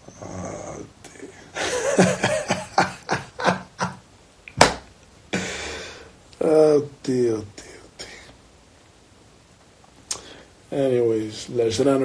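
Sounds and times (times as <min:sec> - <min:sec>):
man laughing in short bursts: 0:01.6 - 0:04.0
sharp knock: 0:04.6 - 0:04.9.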